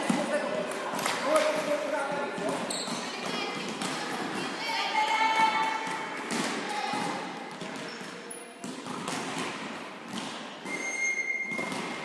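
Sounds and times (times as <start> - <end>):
volleyballs thudding in a hall: 0.0 - 12.0
high squeak: 10.7 - 11.8.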